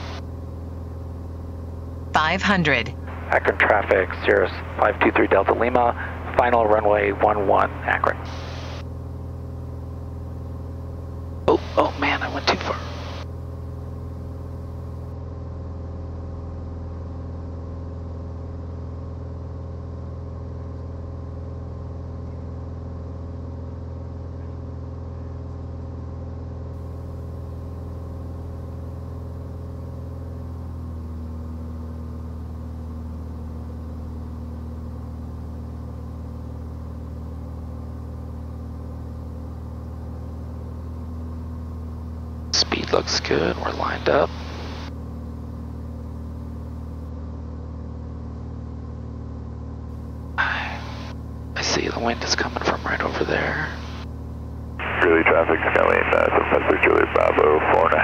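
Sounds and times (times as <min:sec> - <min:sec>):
aircraft engine and propeller droning: 0:00.0 - 0:15.7, 0:26.8 - 0:58.0.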